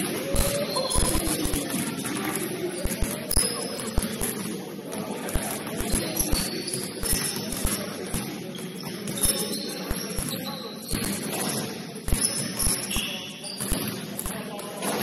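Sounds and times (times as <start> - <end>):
sneakers squeaking: 0.0 - 15.0
basketball bouncing: 5.3 - 15.0.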